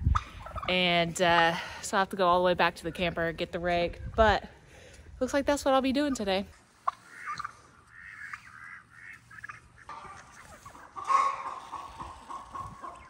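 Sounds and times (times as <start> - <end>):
domestic fowl calling: 6.8 - 13.0.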